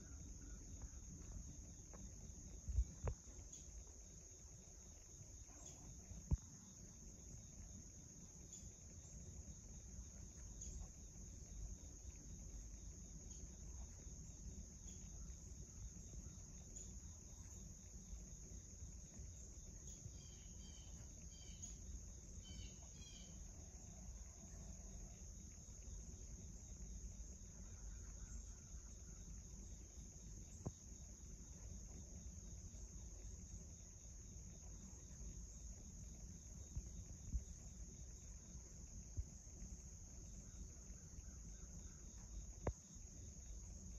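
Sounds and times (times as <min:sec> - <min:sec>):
insect trilling: 0:19.9 - 0:21.8, 0:22.4 - 0:25.2.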